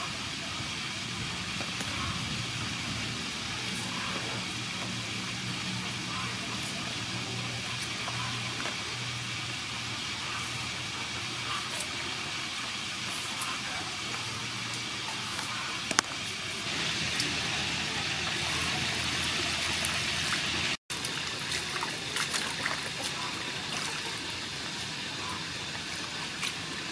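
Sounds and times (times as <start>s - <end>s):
water sloshing in metal bowl: 18.2s - 24.7s.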